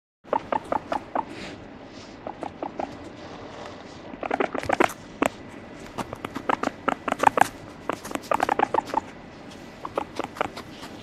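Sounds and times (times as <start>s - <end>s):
guinea pig clicking: 0.3s - 1.3s, 2.2s - 3.1s, 4.1s - 9.2s, 9.8s - 11.0s.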